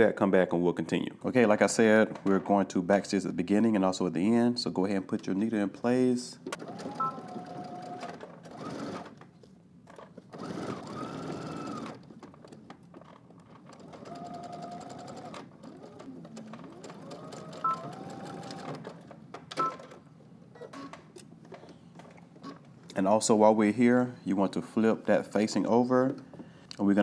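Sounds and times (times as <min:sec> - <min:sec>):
sewing machine motor whine: 0:06.6 - 0:09.1, 0:10.4 - 0:12.0, 0:13.7 - 0:18.9.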